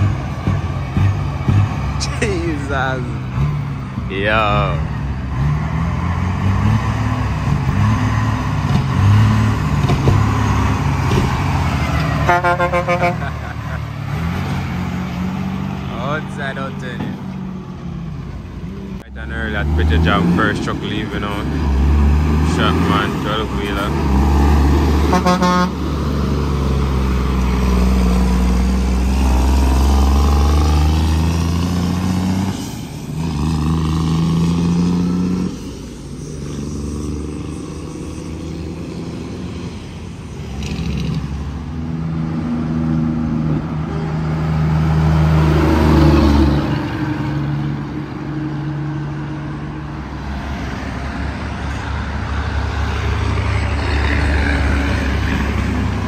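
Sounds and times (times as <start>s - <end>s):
diesel trucks accelerating: 0.0s - 56.0s
truck horn toot: 11.9s - 13.6s, 25.0s - 25.8s.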